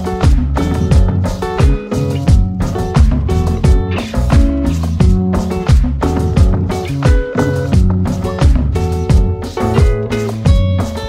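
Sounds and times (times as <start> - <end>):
low drum thump: 0.2 - 10.8.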